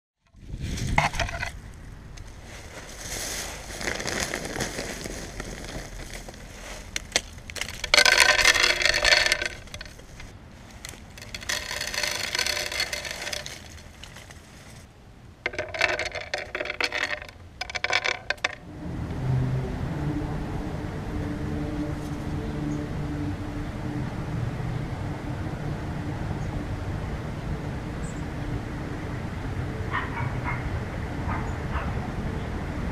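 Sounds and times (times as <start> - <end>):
corn kernels clattering on wood: 0.9 - 1.6, 2.8 - 14.8, 15.5 - 18.6.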